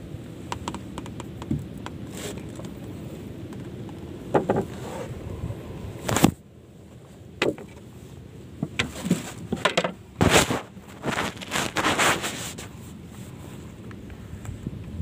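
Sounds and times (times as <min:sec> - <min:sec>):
gloved hands handling fishing gear: 0:08.6 - 0:14.2.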